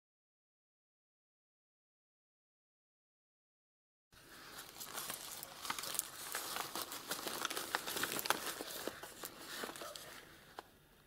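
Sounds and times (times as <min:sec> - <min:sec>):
fabric book pages rustling: 0:04.2 - 0:10.7.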